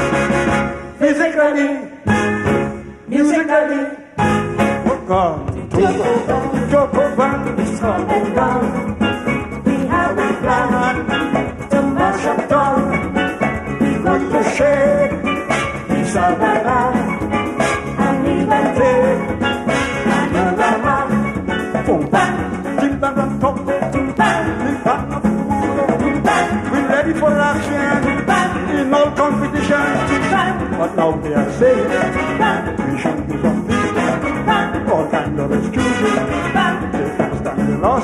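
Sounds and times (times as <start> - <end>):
live calypso band with horns: 0.0 - 38.0
backing singers: 5.8 - 9.0, 9.6 - 13.1, 13.8 - 21.3.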